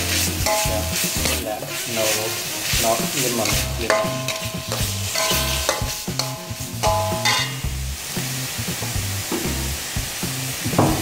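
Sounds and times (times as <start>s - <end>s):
metal spatula scraping wok: 0.0s - 8.4s
background music with bass: 0.0s - 11.0s
paste sizzling in wok: 0.0s - 11.0s.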